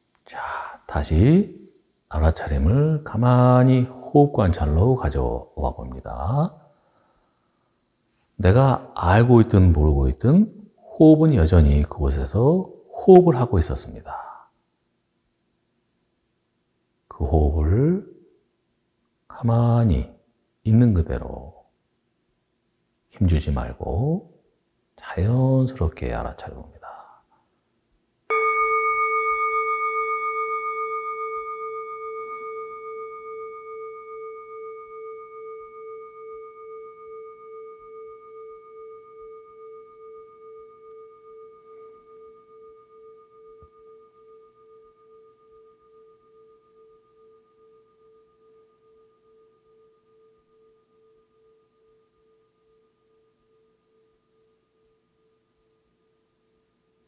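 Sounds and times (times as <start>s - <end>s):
singing bowl ringing: 28.3s - 57.0s.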